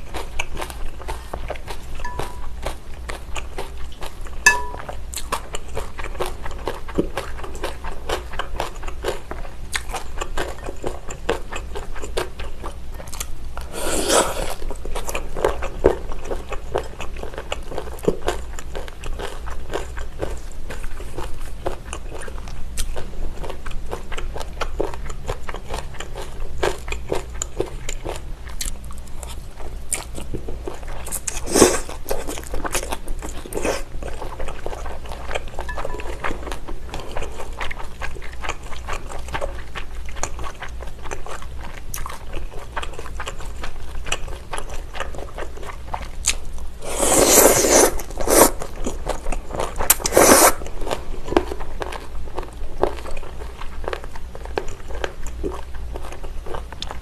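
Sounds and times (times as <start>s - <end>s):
slurping noodles: 13.7s - 14.6s, 31.4s - 31.9s, 46.8s - 48.7s, 49.9s - 50.7s.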